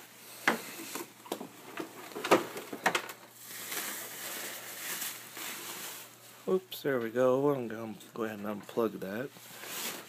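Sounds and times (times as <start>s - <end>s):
packing rustling and crinkling: 0.8s - 6.5s, 9.4s - 10.0s
bubble wrap crackling: 2.0s - 6.6s, 9.4s - 10.0s.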